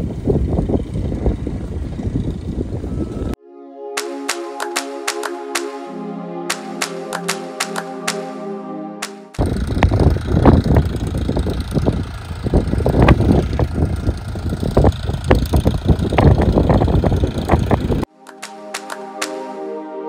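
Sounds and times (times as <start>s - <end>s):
wind buffeting microphone: 0.0s - 3.4s, 9.4s - 18.1s
tractor running: 9.4s - 18.0s.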